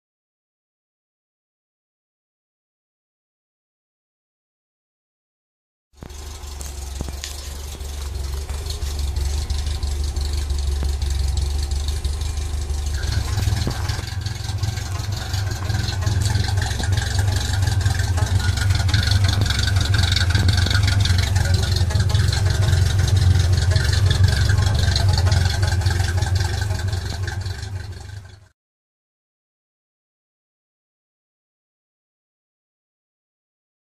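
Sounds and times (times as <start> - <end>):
car engine with open exhaust: 6.0 - 28.5.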